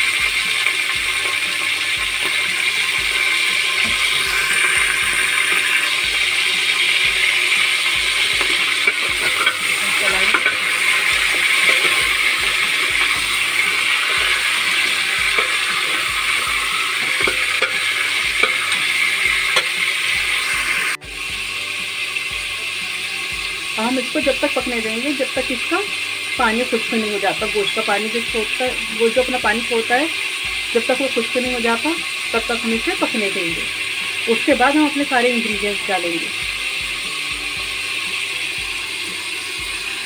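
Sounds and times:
ladle scraping metal pot: 0.0 - 21.0
meat sizzling in hot oil: 0.0 - 40.0.

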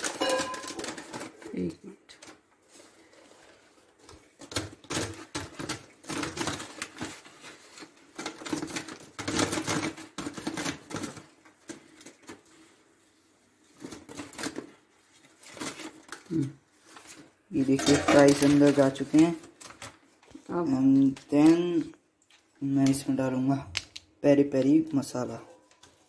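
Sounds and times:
fries rustling in paper bag: 0.0 - 1.9, 2.6 - 21.6.

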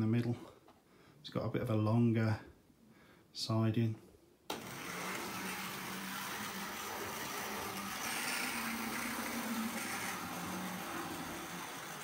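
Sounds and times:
model train motor whirring: 4.5 - 12.0
wheels rolling on rails: 4.5 - 12.0.

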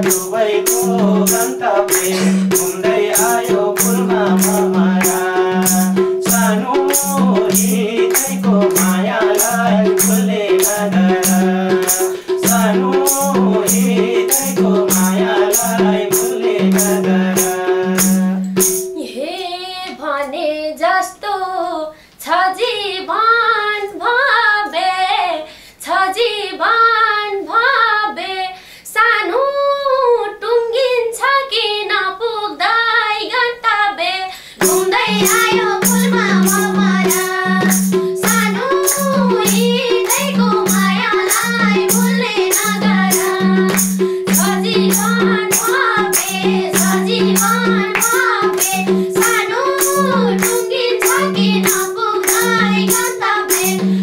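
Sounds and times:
tambourine: 0.0 - 18.9, 34.6 - 54.0
hand drum beat: 0.0 - 19.0, 34.6 - 54.0
women singing folk song: 0.0 - 54.0.

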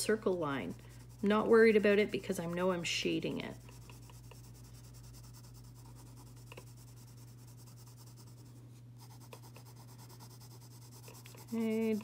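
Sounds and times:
low electrical hum: 0.0 - 12.0
pencil scratching on paper: 0.0 - 12.0.

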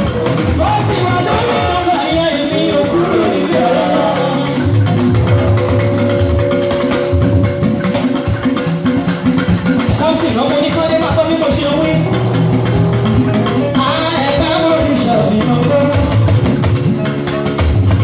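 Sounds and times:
drums: 0.0 - 18.0
keyboard notes: 0.1 - 18.0.

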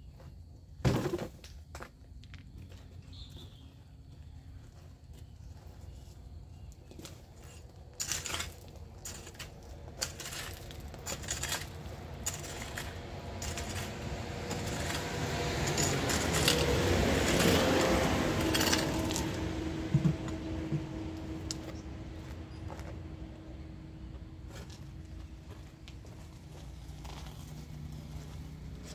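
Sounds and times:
hoe scraping gravel and sand: 5.5 - 20.8, 24.4 - 28.9
blade clinking on stones: 8.0 - 19.4.

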